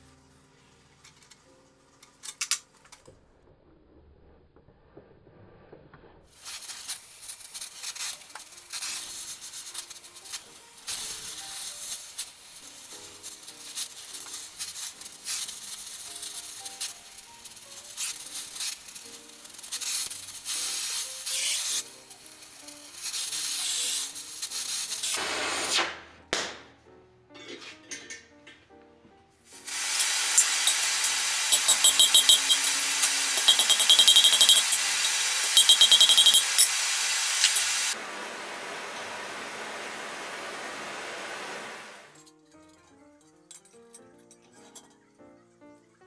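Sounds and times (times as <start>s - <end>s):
gas torch hissing: 6.3s - 26.1s, 29.5s - 42.2s
background music: 9.5s - 29.7s.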